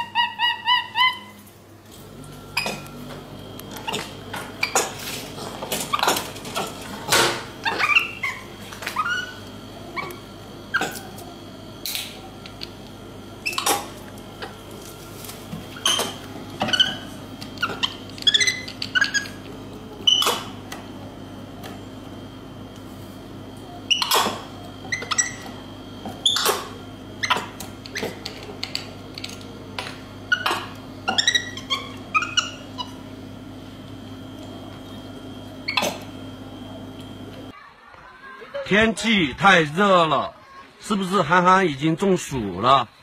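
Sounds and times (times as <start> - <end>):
monkey chirping: 0.0 - 1.4, 7.6 - 11.1, 13.4 - 13.9, 15.8 - 19.4, 23.9 - 25.5, 26.2 - 28.2, 30.3 - 33.0.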